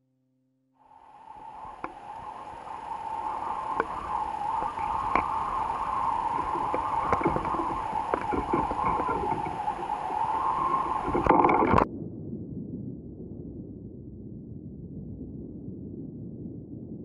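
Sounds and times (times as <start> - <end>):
faint low hiss: 0.8 - 11.9
wavering high hum: 0.8 - 11.9
seawater lapping and gurgling: 0.9 - 11.9
small clicks: 1.4 - 11.9.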